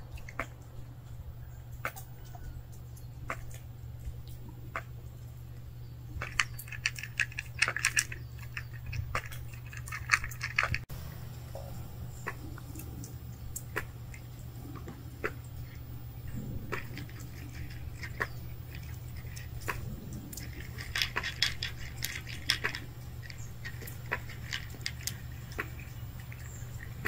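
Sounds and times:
steady low hum: 0.0s - 27.0s
cat crunching dry kibble: 6.0s - 10.8s, 12.4s - 27.0s.

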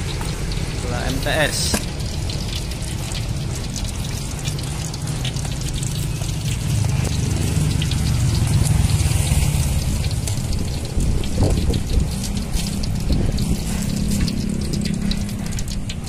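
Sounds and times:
oil sizzling and crackling in a wok: 0.0s - 16.0s
low rumble: 6.4s - 16.0s.

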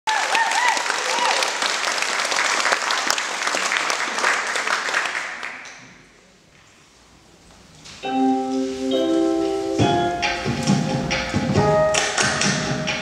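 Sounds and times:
audience clapping: 0.0s - 6.1s, 11.9s - 12.8s.

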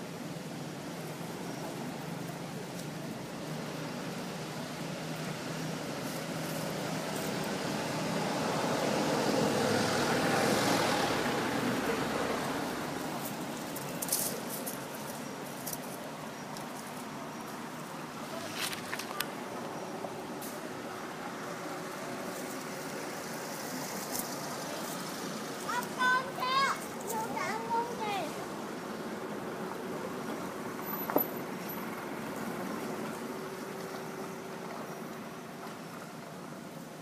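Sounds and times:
motor vehicle passing: 1.2s - 15.6s.

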